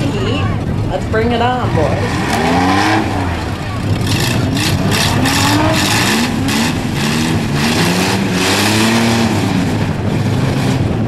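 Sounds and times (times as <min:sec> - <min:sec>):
van engines revving: 0:00.0 - 0:11.0.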